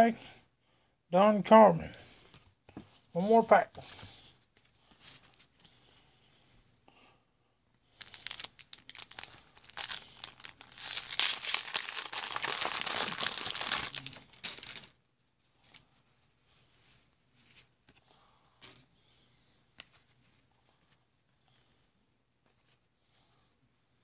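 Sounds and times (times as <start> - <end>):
wrapper crinkling and tearing: 8.0 - 15.0.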